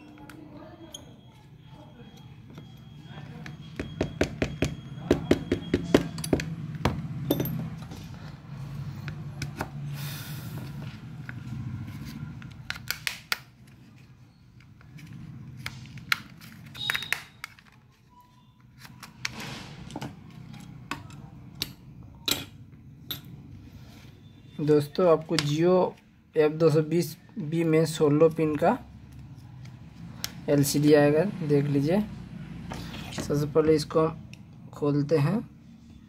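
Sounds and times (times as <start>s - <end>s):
tools knocking on bench: 3.8s - 8.0s.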